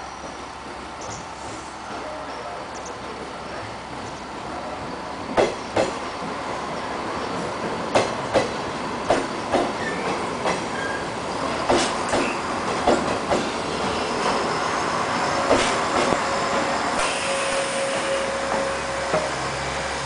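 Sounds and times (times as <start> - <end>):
train wheels clacking over rail joints: 5.3 - 6.0, 7.6 - 11.0, 11.6 - 14.4, 15.5 - 16.7
train wheel squeal: 9.1 - 12.5, 13.7 - 20.0.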